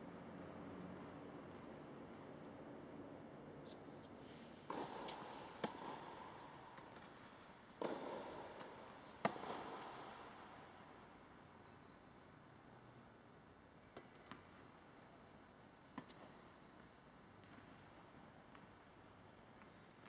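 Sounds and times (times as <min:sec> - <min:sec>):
racket striking tennis ball: 0:04.0 - 0:10.6
tennis ball bouncing: 0:04.2 - 0:10.7.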